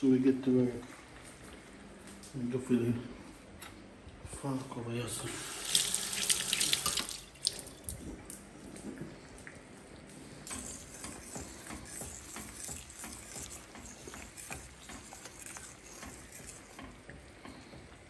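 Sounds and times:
pot boiling with bubbling pops: 0:10.4 - 0:18.0.

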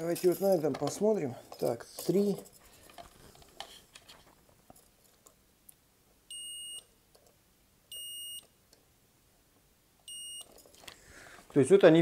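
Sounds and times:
multimeter continuity beep: 0:06.3 - 0:06.9, 0:07.9 - 0:08.6, 0:10.0 - 0:10.5.

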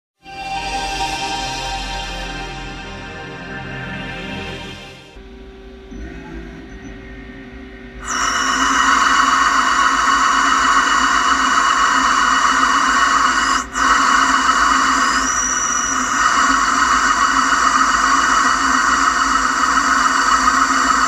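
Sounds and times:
lathe low hum: 0:02.6 - 0:21.0
lathe cutting rushing noise: 0:08.0 - 0:21.0.

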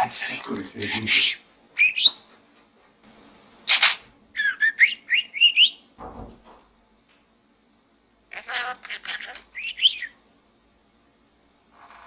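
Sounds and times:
budgerigar chirping: 0:01.8 - 0:02.2, 0:08.4 - 0:10.2.

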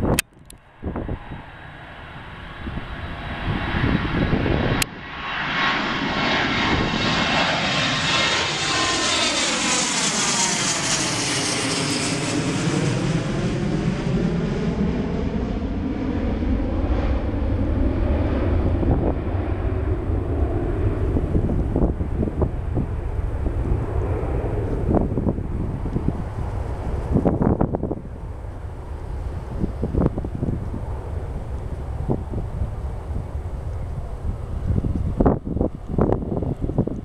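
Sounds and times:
jet airliner engine drone: 0:00.0 - 0:37.0.

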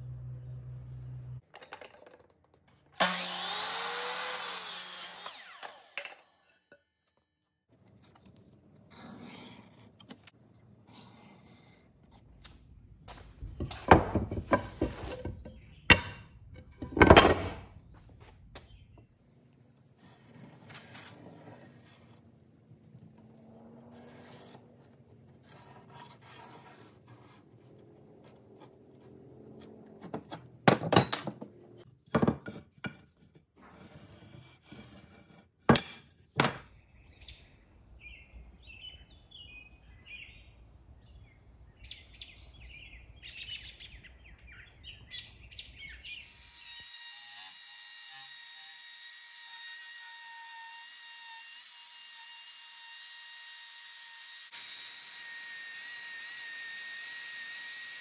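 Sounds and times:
wood and steel blade scraping: 0:07.8 - 0:17.7, 0:20.0 - 0:22.5, 0:23.4 - 0:36.3.

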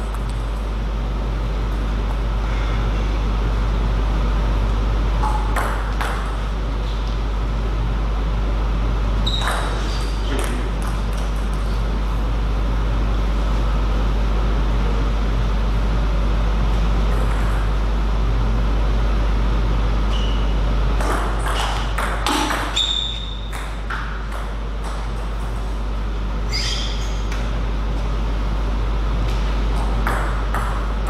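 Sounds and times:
steady low hum: 0:00.0 - 0:31.0
short high squeaks: 0:09.2 - 0:10.3, 0:20.1 - 0:20.5, 0:22.8 - 0:23.5, 0:26.5 - 0:27.3.

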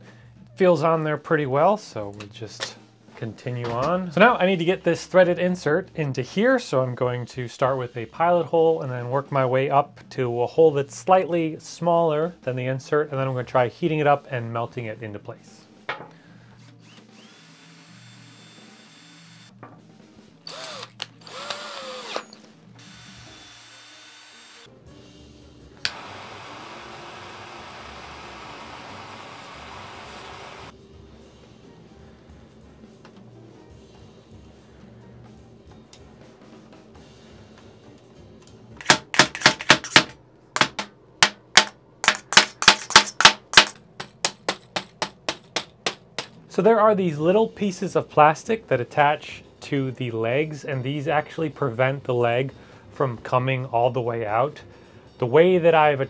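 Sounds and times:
cordless drill spinning: 0:16.6 - 0:19.5, 0:20.5 - 0:24.7, 0:25.8 - 0:30.7
hammer striking metal: 0:38.8 - 0:46.4.

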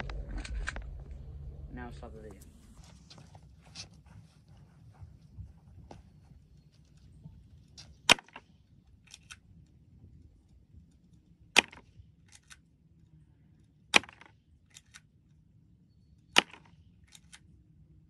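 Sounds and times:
airsoft pistol shots: 0:11.6 - 0:11.9, 0:14.0 - 0:14.3, 0:16.4 - 0:16.7.

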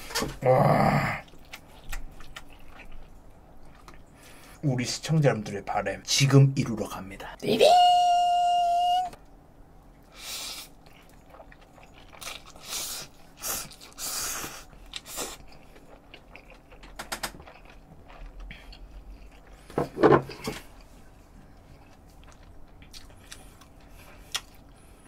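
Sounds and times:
person chewing and slurping noodles: 0:01.2 - 0:04.2, 0:10.2 - 0:25.0.

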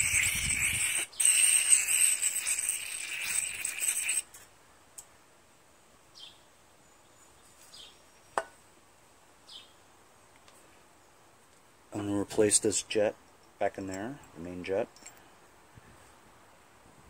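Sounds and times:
aerosol can spraying hiss: 0:00.0 - 0:04.4.

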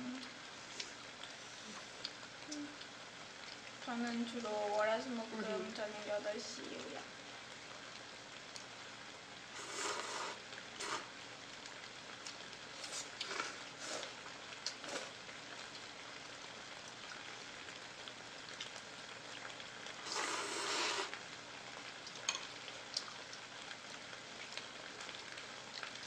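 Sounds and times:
broth simmering hiss: 0:00.0 - 0:26.0
noodles being slurped: 0:09.5 - 0:11.2, 0:12.8 - 0:15.2, 0:20.0 - 0:21.2.

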